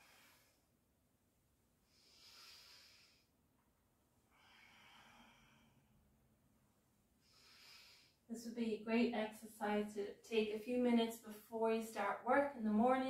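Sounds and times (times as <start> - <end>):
woman breathing deeply: 0.0 - 0.8, 1.8 - 3.4, 4.3 - 6.1, 7.2 - 8.3.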